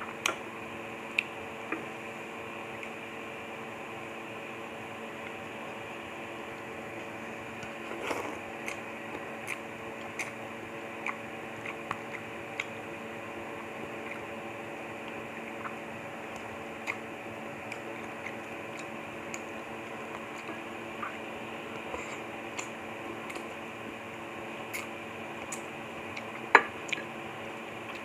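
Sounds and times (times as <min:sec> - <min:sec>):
steady background hum: 0:00.0 - 0:28.0
wet chewing: 0:07.5 - 0:13.0, 0:13.8 - 0:23.6, 0:24.7 - 0:27.1
slurping noodles: 0:07.8 - 0:08.8.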